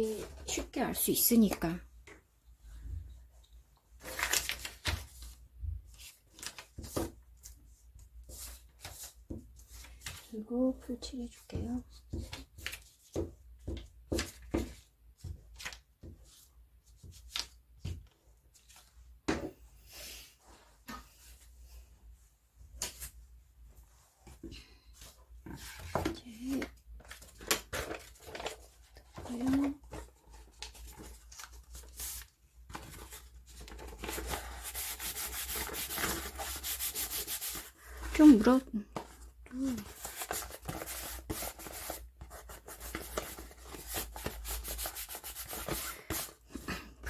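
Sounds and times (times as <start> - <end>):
paper rustling on wooden desk: 4.0 - 7.6, 25.0 - 46.7
hand rubbing paper on table: 34.4 - 37.8.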